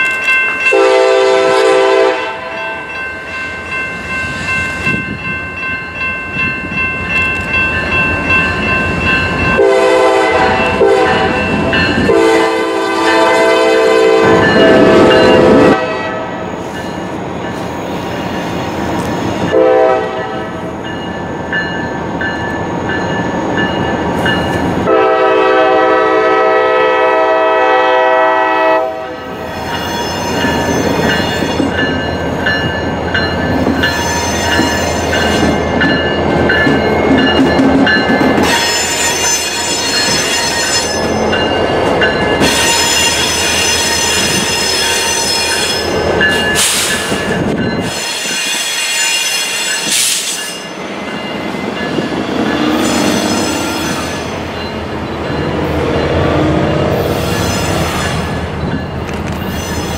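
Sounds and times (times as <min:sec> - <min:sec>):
locomotive engine and wheels: 0:00.0 - 0:27.8, 0:29.2 - 0:59.9
locomotive horn blast: 0:00.7 - 0:02.6, 0:09.6 - 0:16.5, 0:19.5 - 0:20.5, 0:24.8 - 0:29.3
high-pitched wheel squeal: 0:52.2 - 0:54.4.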